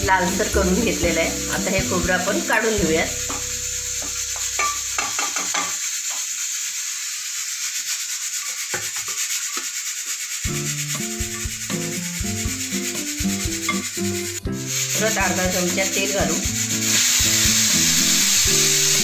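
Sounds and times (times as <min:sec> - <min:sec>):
simple background melody: 0:00.0 - 0:05.0, 0:10.5 - 0:19.0
spatula scraping a pan: 0:07.8 - 0:19.0.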